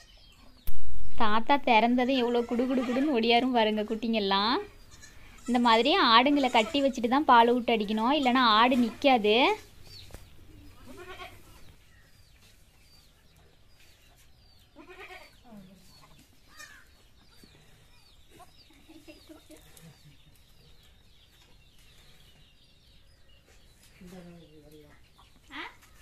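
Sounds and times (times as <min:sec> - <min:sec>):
goats bleating: 0:02.2 - 0:03.2, 0:10.8 - 0:11.5.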